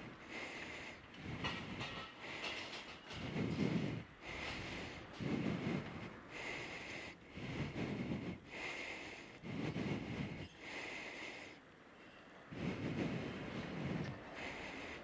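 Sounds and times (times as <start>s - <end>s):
rhythmic bicycle swishing: 0.0s - 10.6s.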